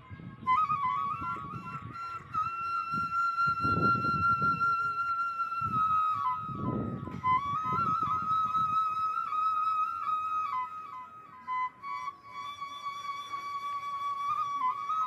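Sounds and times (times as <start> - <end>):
flute melody: 0.0 - 15.0.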